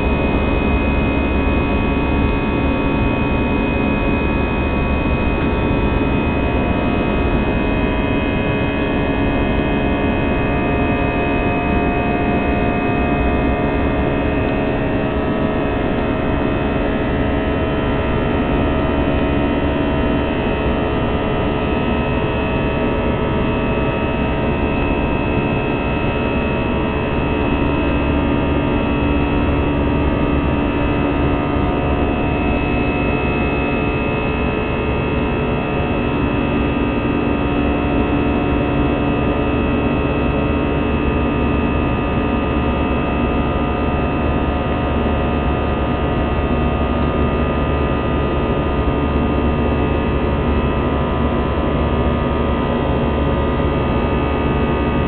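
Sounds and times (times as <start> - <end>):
jet engines droning: 0.0 - 39.8.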